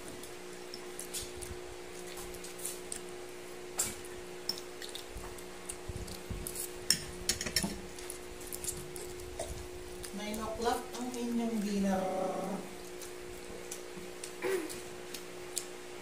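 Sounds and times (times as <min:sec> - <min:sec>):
steady low hum: 0:00.0 - 0:16.0
cutlery clinking on a plate: 0:06.9 - 0:07.8.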